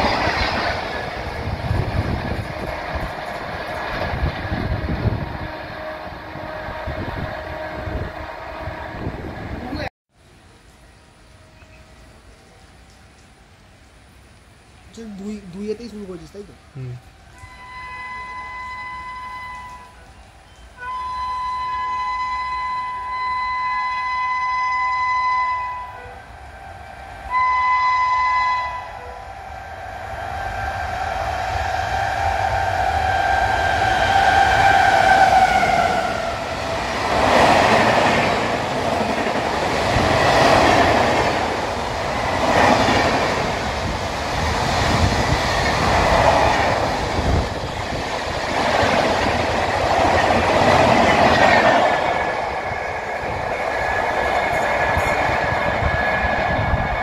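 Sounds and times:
locomotive whine: 0.0 - 13.6, 16.8 - 57.0
train horn: 4.2 - 9.4, 10.8 - 13.0, 17.2 - 36.9.

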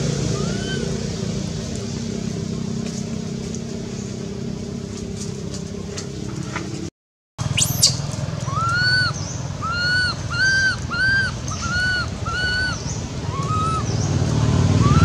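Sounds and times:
infant monkey crying: 0.2 - 1.0, 7.6 - 14.0.

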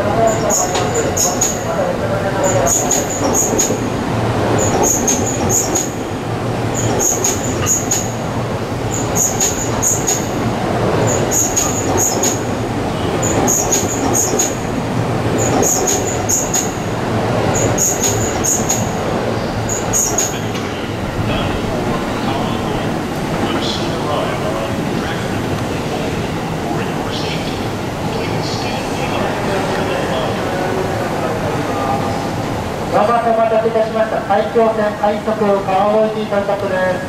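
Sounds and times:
train rumble: 0.0 - 37.0
wheels clicking over rail joints: 6.7 - 8.2, 11.0 - 12.5, 13.2 - 14.7, 15.3 - 16.8.

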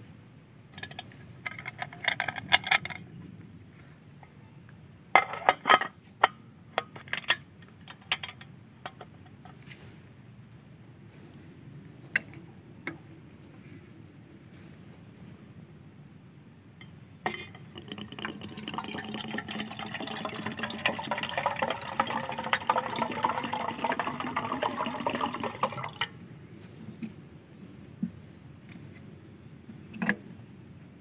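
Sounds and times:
insects chirring: 0.0 - 31.0
metal cup clinking and rattling: 0.8 - 3.0, 17.2 - 26.1.

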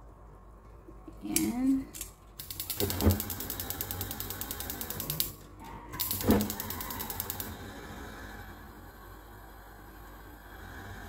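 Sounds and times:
gas stove igniter clicking: 2.0 - 5.4, 6.0 - 7.6.

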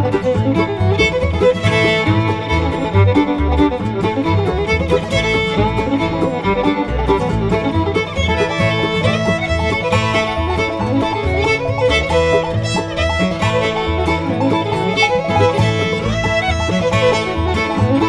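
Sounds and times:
bluegrass music with fiddle: 0.0 - 18.0.

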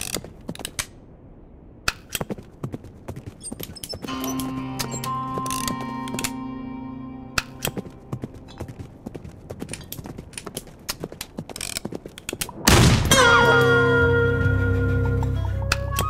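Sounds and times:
held musical tones: 4.0 - 9.0, 13.1 - 16.0.

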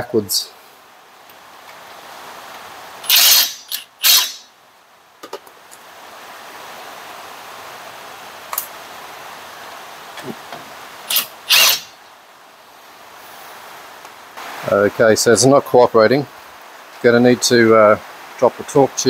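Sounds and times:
steady background hiss: 0.0 - 19.0
impact wrench bursts: 3.0 - 4.5, 11.1 - 12.0.

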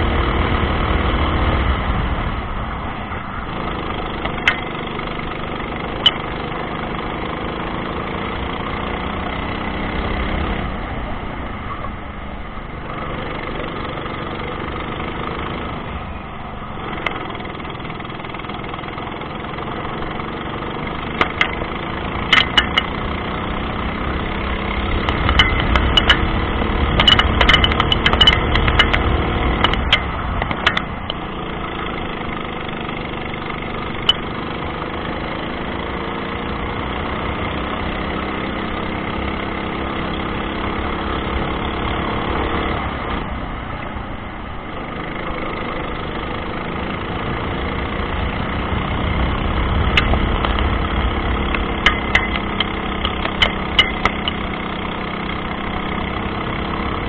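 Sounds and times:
kart engine running: 0.0 - 57.0
sharp knocks and rattles: 3.6 - 6.5, 16.8 - 23.1, 24.8 - 34.5, 49.7 - 54.9.

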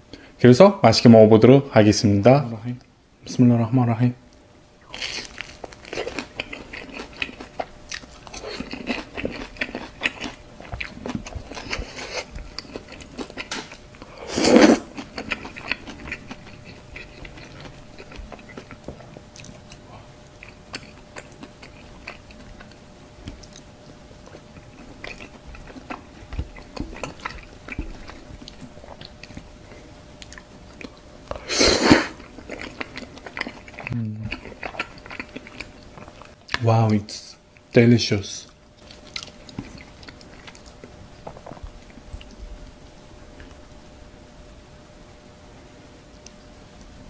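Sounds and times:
person chewing wet mouth sounds: 4.9 - 36.6, 38.8 - 42.5.

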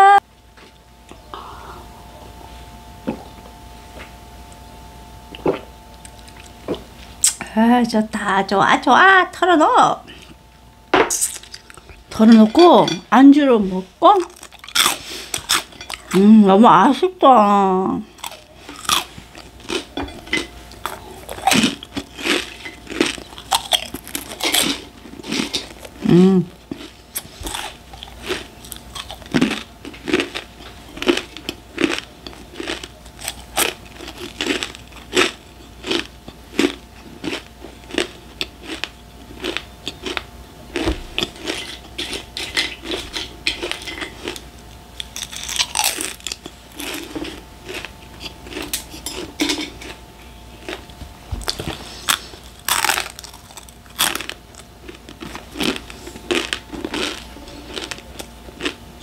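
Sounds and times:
crunching and chewing chips: 5.3 - 7.4, 11.1 - 12.9, 14.1 - 16.3, 18.0 - 59.0.

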